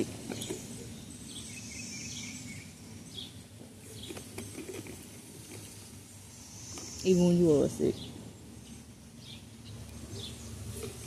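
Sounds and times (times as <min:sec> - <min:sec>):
bird chirps: 0:00.0 - 0:04.4
insect sounds: 0:04.0 - 0:11.0.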